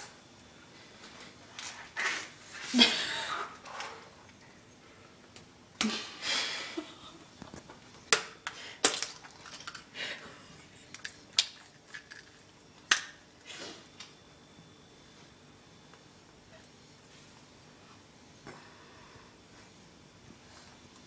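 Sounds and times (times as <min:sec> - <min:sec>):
eggshells cracking on tile floor: 0:07.4 - 0:09.9, 0:10.9 - 0:13.2.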